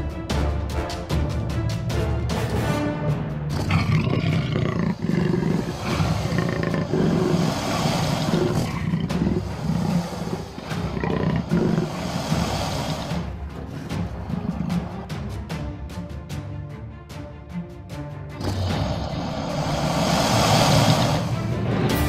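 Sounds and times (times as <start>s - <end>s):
background music: 0.0s - 22.0s
big cat roaring and growling: 3.5s - 15.2s, 18.4s - 22.0s.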